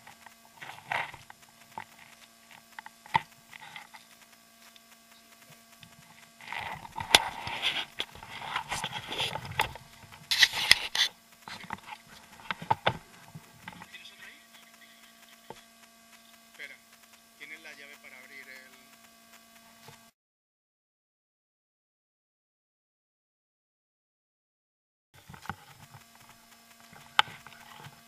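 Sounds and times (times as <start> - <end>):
clothing rubbing against camera: 0.0 - 15.5, 25.2 - 28.0
steady electrical hum: 0.0 - 20.1, 25.2 - 28.0.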